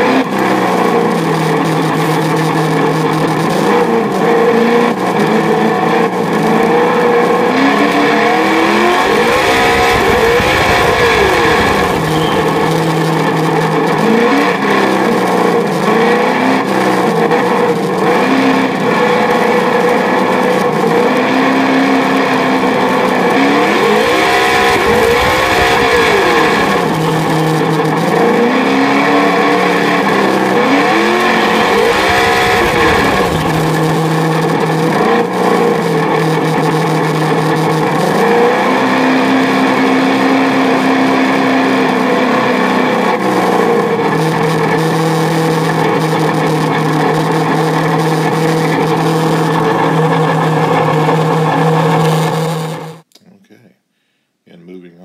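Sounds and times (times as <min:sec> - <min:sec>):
synthetic engine sound through speaker: 0:08.6 - 0:13.8, 0:23.6 - 0:28.0, 0:30.4 - 0:34.8.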